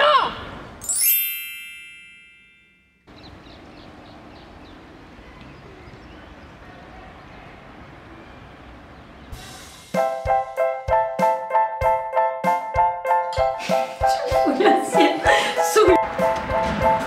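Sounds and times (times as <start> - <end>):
outdoor background noise: 0.0 - 10.4
metallic chime: 0.8 - 3.1.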